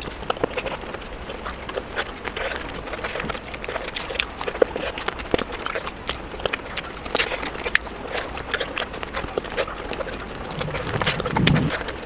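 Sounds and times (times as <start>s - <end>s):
wet chewing and lip-smacking: 0.0s - 12.0s.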